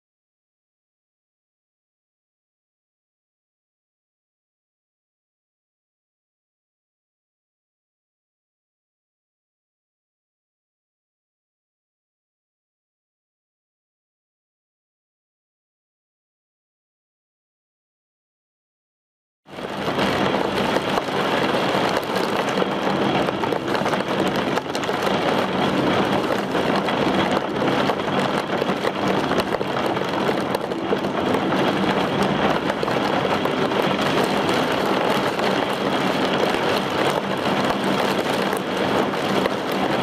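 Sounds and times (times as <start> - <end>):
gusting wind: 19.5 - 40.0
heavy rain: 19.5 - 40.0.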